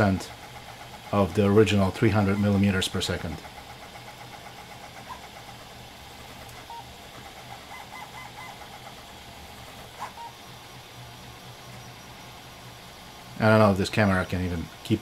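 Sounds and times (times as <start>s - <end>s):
steady low hum: 0.0s - 15.0s
stepper motors chirping and whining: 0.0s - 15.0s.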